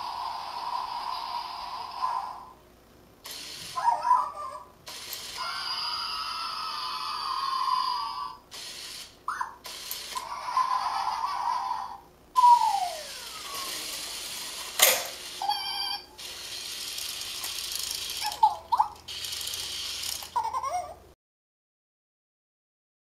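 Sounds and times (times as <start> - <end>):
toy motor whirring: 0.0 - 2.6, 3.2 - 20.9
electronic toy chirps and squeaks: 9.3 - 9.6, 15.4 - 16.2
sharp click: 14.8 - 15.1.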